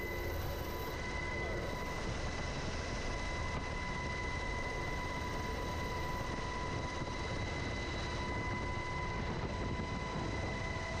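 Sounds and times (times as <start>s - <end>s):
helicopter running: 0.0s - 11.0s.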